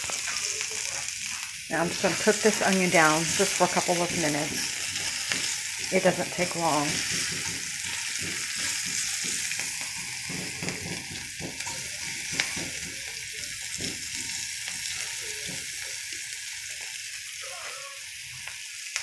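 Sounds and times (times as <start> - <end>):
onions sizzling in oil: 0.0 - 19.0
tongs knocking against pan: 2.3 - 15.7.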